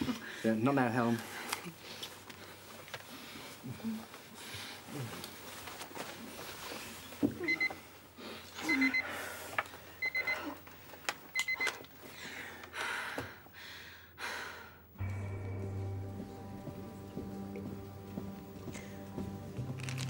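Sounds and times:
rustling: 1.2 - 7.2, 19.6 - 20.0.

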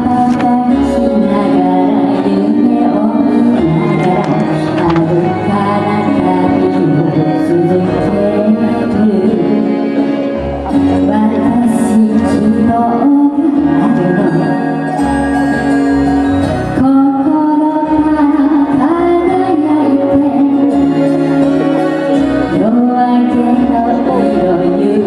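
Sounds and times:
woman singing into a microphone: 0.0 - 15.1, 16.7 - 25.0
instrumental accompaniment: 0.0 - 25.0.

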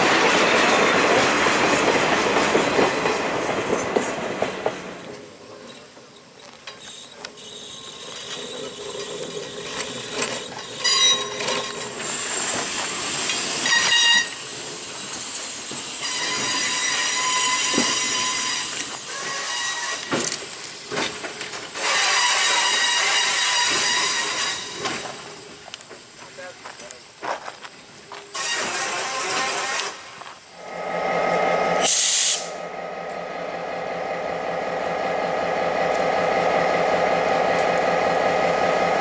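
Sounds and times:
train cars rushing past: 0.0 - 5.7, 28.3 - 39.0
high-pitched wheel squealing: 6.9 - 12.8.

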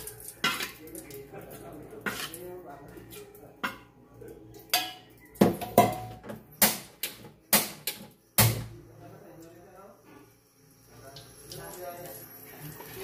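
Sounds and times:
metal spatula knocking on steel: 4.8 - 6.9.

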